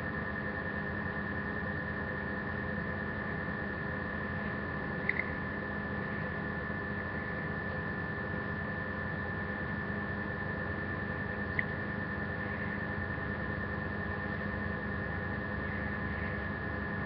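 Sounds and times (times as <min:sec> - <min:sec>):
electrical hum and hiss: 0:00.0 - 0:17.0.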